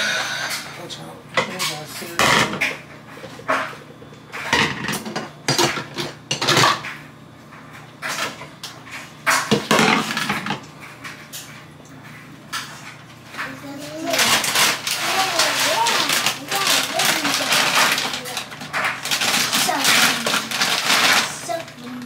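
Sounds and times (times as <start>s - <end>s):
plastic bowls knocking together: 13.4s - 21.8s.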